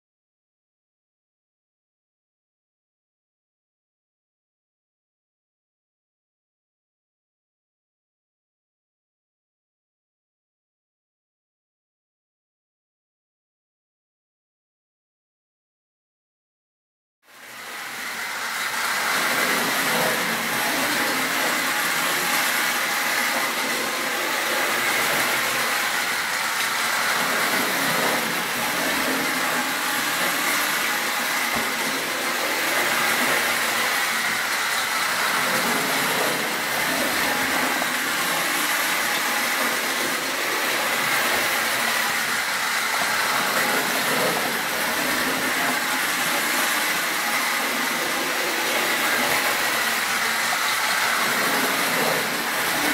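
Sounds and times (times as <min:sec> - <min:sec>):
toy train motor whirring: 0:17.3 - 0:52.9
wheels rattling on rails: 0:18.8 - 0:52.9.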